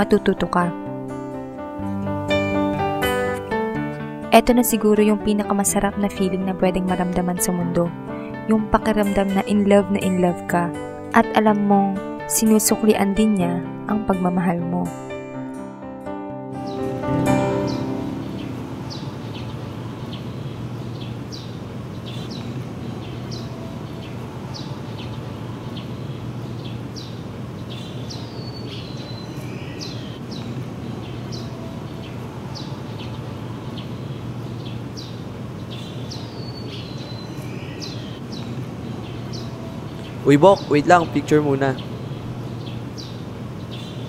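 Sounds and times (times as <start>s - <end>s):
birds chirping: 16.6s - 44.0s.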